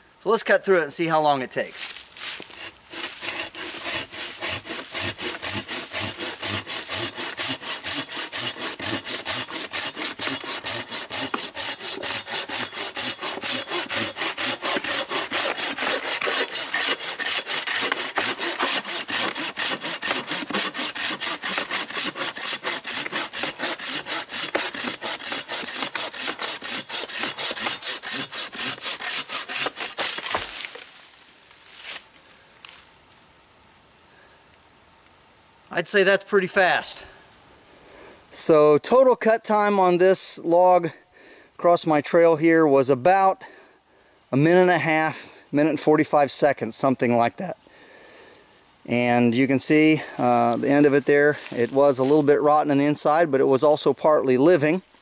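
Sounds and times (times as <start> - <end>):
pull saw cutting log: 2.2 - 30.8.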